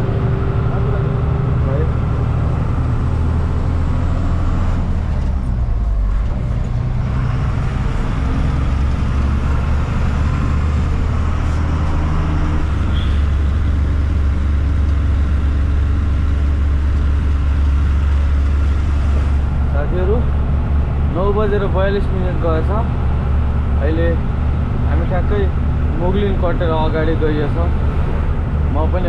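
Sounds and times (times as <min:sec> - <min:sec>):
truck diesel engine droning: 0:00.0 - 0:29.0.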